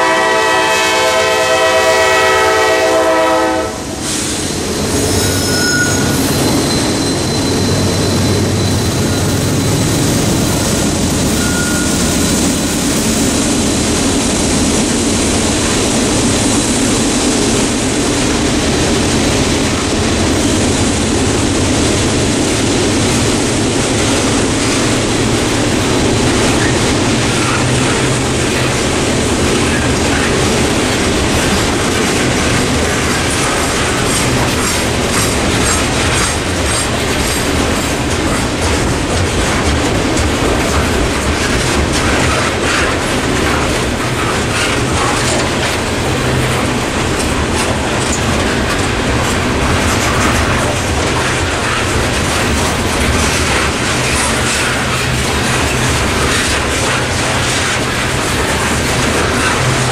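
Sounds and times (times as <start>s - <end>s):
diesel locomotive passing: 0.0s - 59.9s
steel wheels on rails: 0.0s - 59.9s.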